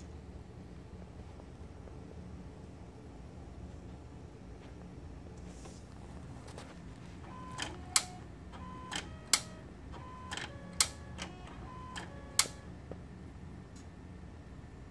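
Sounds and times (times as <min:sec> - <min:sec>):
dvd drive motor whir: 0:07.2 - 0:12.8
dvd drive sharp click: 0:07.3 - 0:12.7.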